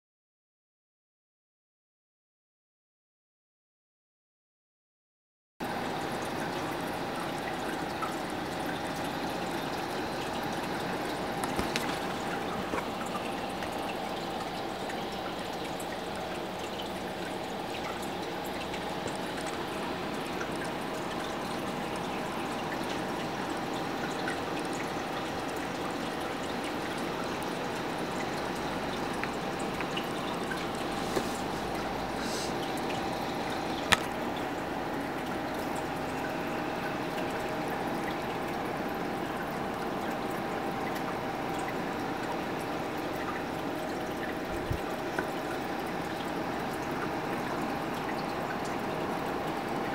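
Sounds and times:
aquarium water trickling: 5.6s - 49.9s
faint steady hum: 5.6s - 49.9s.

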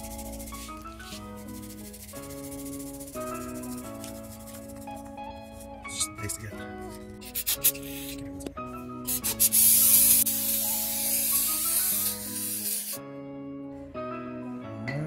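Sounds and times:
aerosol spray hiss: 0.0s - 5.0s, 7.2s - 8.2s, 9.1s - 13.0s.

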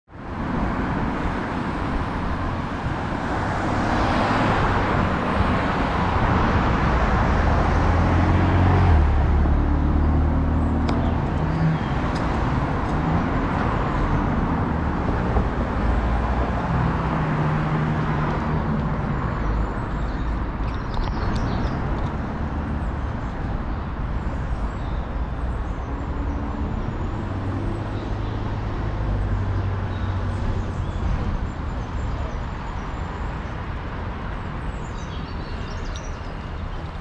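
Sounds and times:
traffic hum: 0.1s - 37.0s
vehicle passing by: 2.8s - 20.6s.

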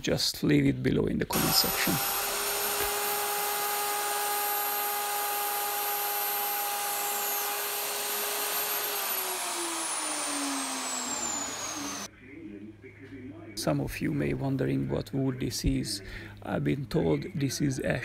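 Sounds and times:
router cutting wood: 1.3s - 12.1s.

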